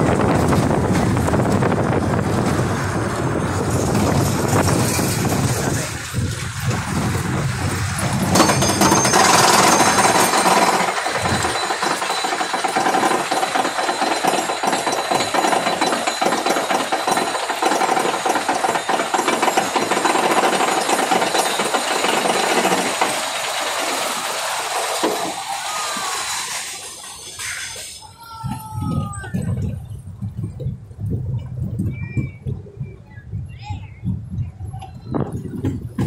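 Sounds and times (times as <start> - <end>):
steady whine: 1.1 - 24.4
lift chain clatter: 3.6 - 6.8, 7.4 - 28.2.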